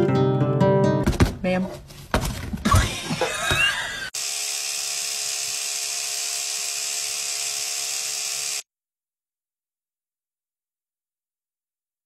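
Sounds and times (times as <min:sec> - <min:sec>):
electric toothbrush buzzing: 0:02.9 - 0:08.7.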